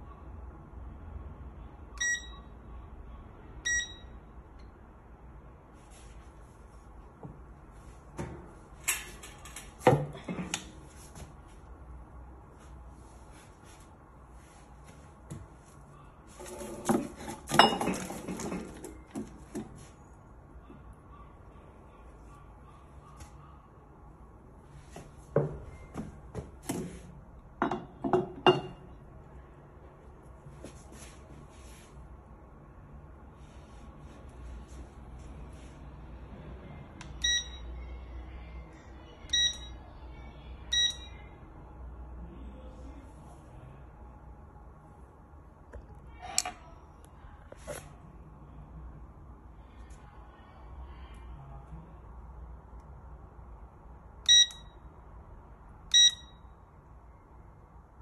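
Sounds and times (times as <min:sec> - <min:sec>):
short high beeps: 0:02.0 - 0:02.5, 0:03.7 - 0:04.2, 0:37.2 - 0:37.7, 0:39.3 - 0:39.7, 0:40.7 - 0:41.1, 0:54.3 - 0:54.7, 0:55.9 - 0:56.4.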